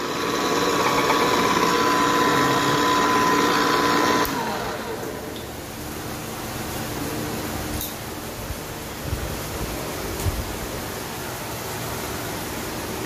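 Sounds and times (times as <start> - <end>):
pipe threading machine running: 0.0 - 5.5.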